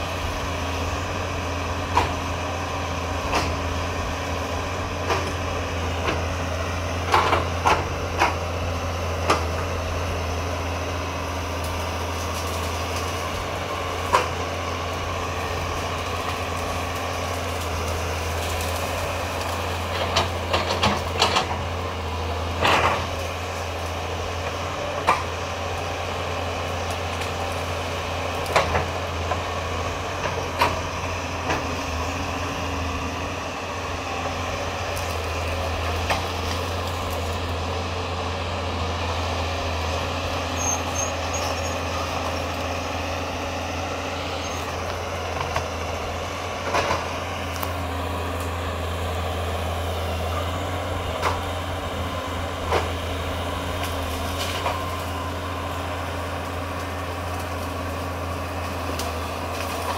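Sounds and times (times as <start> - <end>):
excavator diesel engine running: 0.0 - 59.9
sharp knocks and cracks: 18.4 - 21.6.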